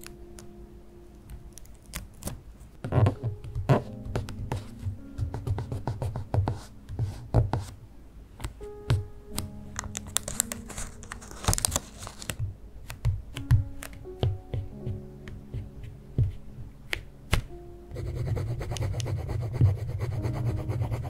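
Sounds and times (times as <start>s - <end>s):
soft background music: 0.0s - 21.0s
sticker sheet crinkling: 9.7s - 13.4s.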